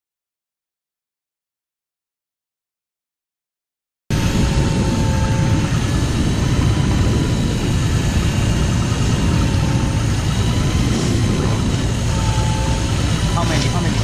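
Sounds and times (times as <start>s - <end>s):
electric reel whine: 4.1s - 14.0s
outboard boat engine rumble: 4.1s - 14.0s
wind on microphone: 4.1s - 14.0s.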